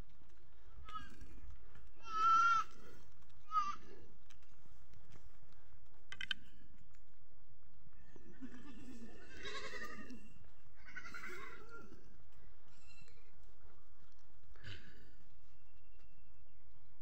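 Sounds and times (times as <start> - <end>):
sheep or goats bleating: 2.0 - 4.0, 8.4 - 12.0.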